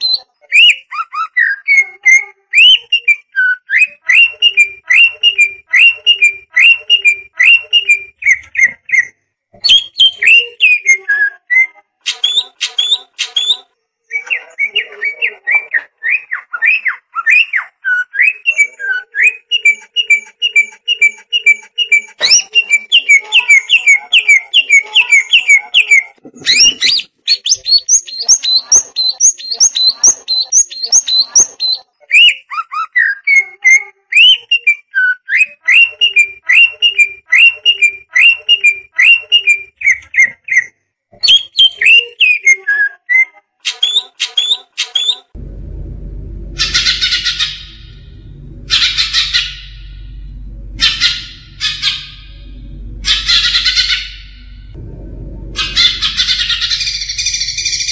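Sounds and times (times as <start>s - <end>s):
bird singing whistled notes: 0.0s - 45.3s, 55.6s - 57.9s
low thump: 45.4s - 57.9s.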